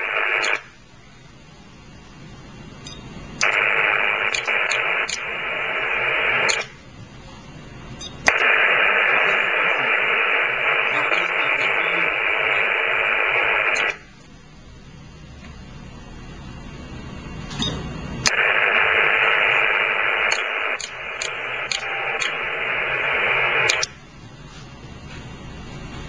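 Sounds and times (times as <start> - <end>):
radio static hiss: 0.0 - 0.9, 3.3 - 6.9, 8.3 - 14.2, 18.2 - 24.0
radio switching click: 3.4 - 6.8, 18.2 - 24.0.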